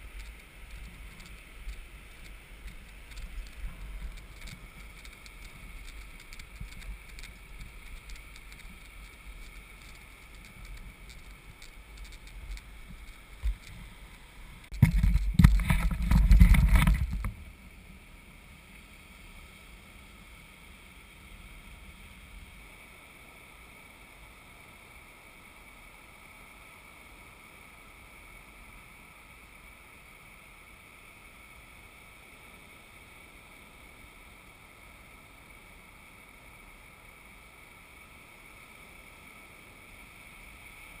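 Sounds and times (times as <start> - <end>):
faint steady hiss: 0.0 - 41.0
wind buffeting microphone: 14.7 - 17.4.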